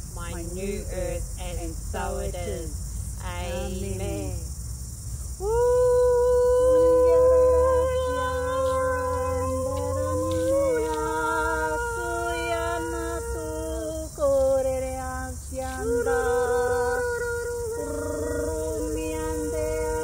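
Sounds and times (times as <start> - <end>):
women's voices toning held notes: 5.4 - 20.0.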